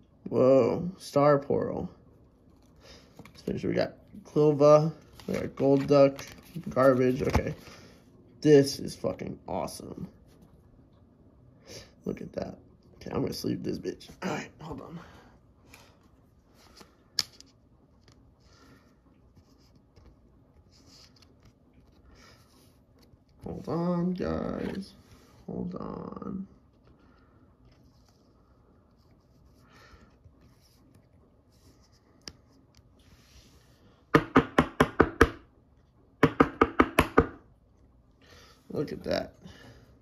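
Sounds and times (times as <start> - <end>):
card rustling into plastic sleeve: 4.8 - 7.7, 19.3 - 25.3
sharp knocks on hard surface: 34.1 - 35.4, 36.2 - 37.4.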